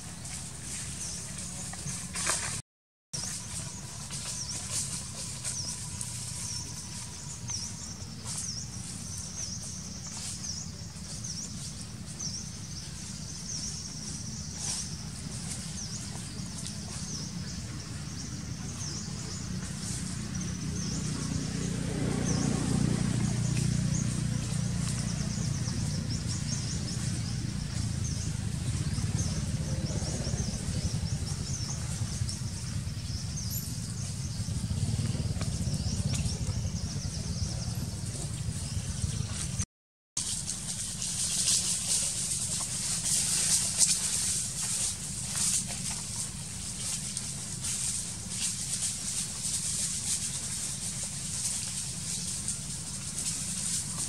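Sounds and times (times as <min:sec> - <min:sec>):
birds chirping: 0:03.2 - 0:39.6
steady low rumble: 0:03.4 - 0:39.6.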